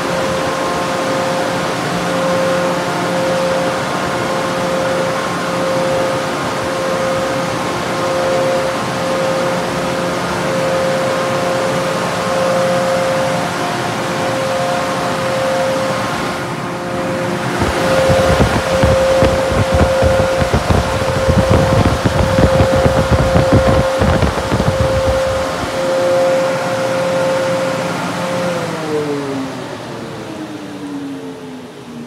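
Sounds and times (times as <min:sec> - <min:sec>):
air dryers whining: 0:14.0 - 0:31.6
wind buffeting microphone: 0:17.4 - 0:26.0.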